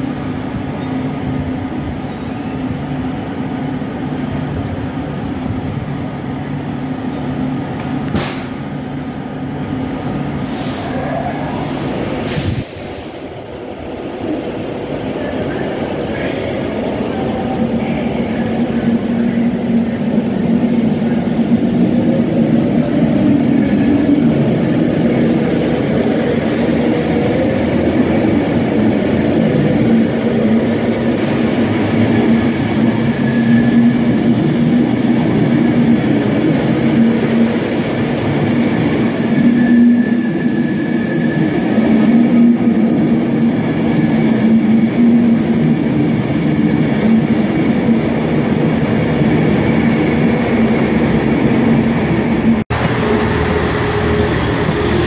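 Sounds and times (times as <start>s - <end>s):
electric train passing: 0.0s - 55.0s
brief high hiss: 8.2s - 8.6s.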